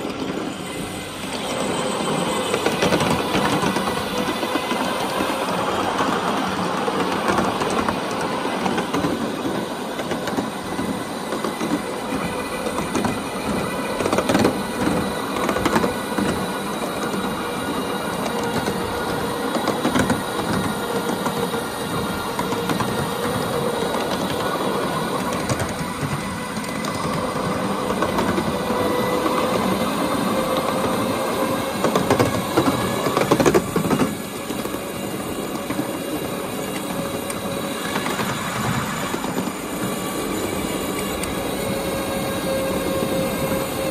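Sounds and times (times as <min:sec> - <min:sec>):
electric locomotive motor whine: 0:00.0 - 0:43.9
wheels clacking over rail joints: 0:00.0 - 0:43.9.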